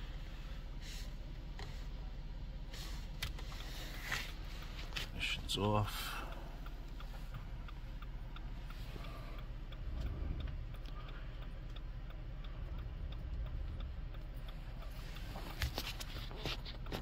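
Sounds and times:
low steady hum: 0.0s - 17.0s
hazard flasher ticking: 4.3s - 15.3s.

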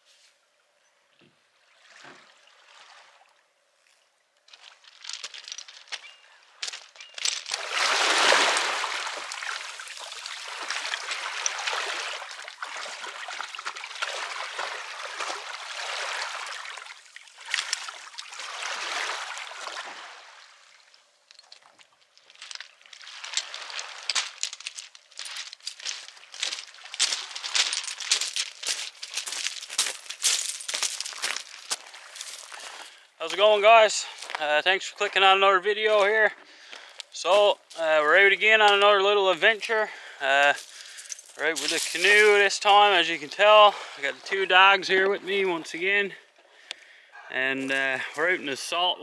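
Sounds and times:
seawater sloshing: 4.6s - 21.0s, 21.6s - 32.7s.

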